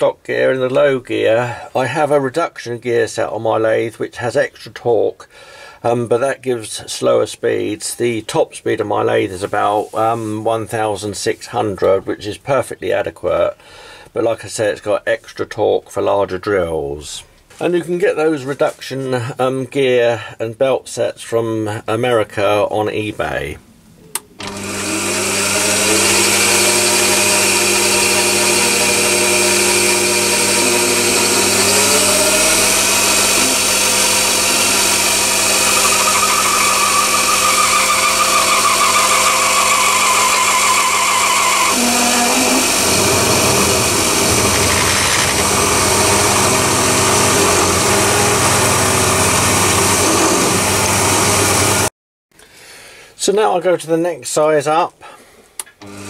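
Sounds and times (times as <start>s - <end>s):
drill boring into steel: 24.4s - 51.9s
lathe motor and gear whine: 24.4s - 51.9s.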